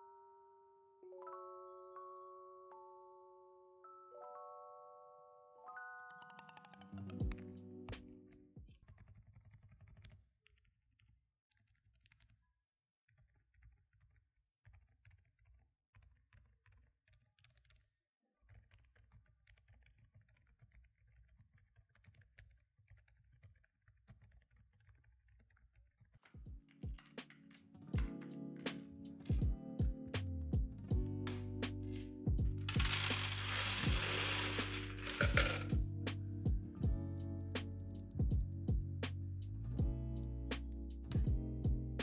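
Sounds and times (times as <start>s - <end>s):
music: 0.0s - 9.2s, 26.3s - 42.0s
soft keyboard typing: 13.1s - 30.2s, 30.8s - 35.8s.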